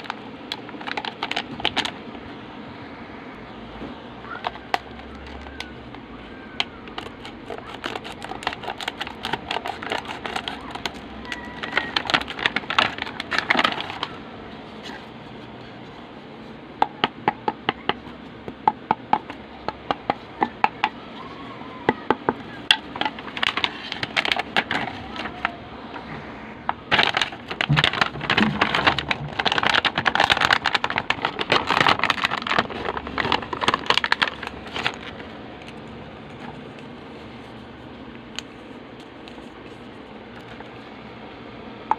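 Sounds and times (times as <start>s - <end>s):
plastic packaging crinkling: 0.0s - 2.2s, 4.3s - 16.0s, 22.5s - 25.6s, 26.8s - 40.9s.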